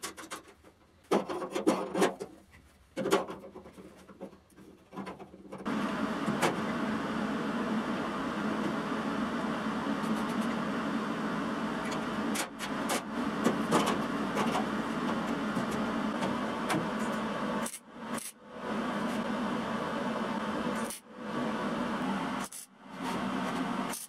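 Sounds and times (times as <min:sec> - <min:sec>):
workshop machine humming: 0:05.6 - 0:24.0.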